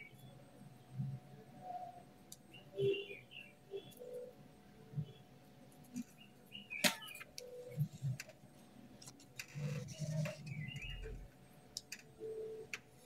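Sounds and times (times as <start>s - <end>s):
marker squeaking on paper: 9.4s - 11.2s.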